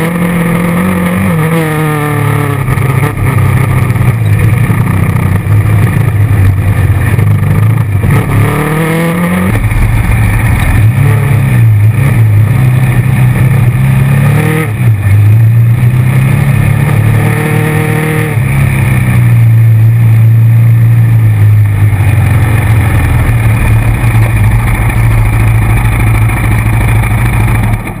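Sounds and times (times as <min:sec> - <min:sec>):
atv engine running: 0:00.0 - 0:28.0.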